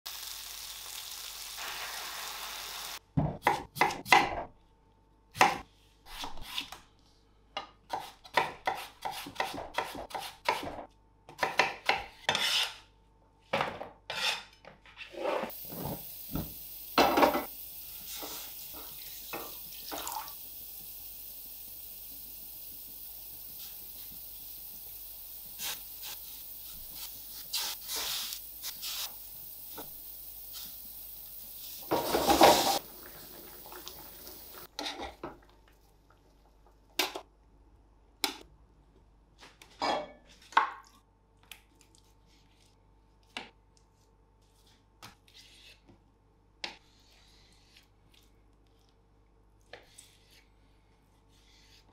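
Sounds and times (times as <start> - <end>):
knife chopping on wooden board: 7.9 - 12.6
gas burner hissing: 15.5 - 34.7.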